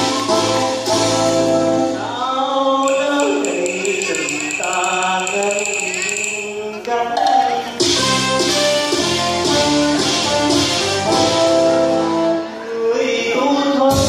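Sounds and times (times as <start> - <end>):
instrumental accompaniment: 0.0 - 2.2, 2.9 - 12.6
opera singing with sliding pitch: 11.7 - 14.0.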